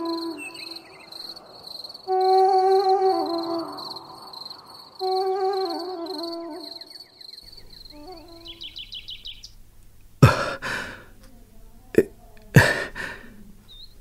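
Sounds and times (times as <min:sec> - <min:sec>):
birds chirping in trills: 0:00.0 - 0:11.1, 0:13.3 - 0:14.0
person gasping breaths: 0:10.2 - 0:11.2, 0:12.0 - 0:13.5.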